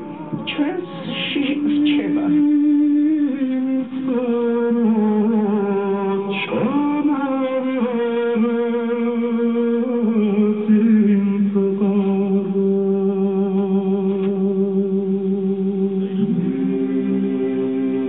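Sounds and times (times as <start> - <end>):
male choir singing polyphony: 0.0 - 3.1, 16.0 - 18.0.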